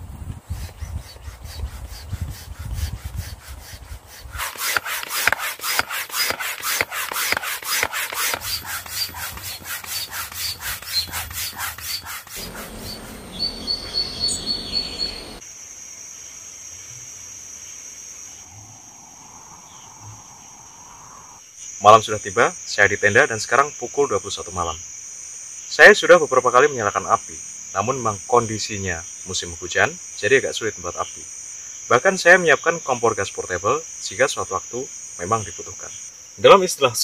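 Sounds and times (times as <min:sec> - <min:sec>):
crickets chirping: 0:00.0 - 0:37.0
hand air pump strokes: 0:00.5 - 0:13.2.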